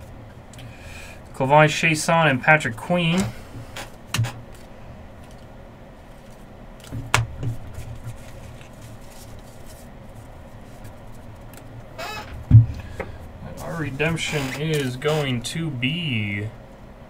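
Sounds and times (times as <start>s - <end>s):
trading cards handled: 4.5s - 11.6s.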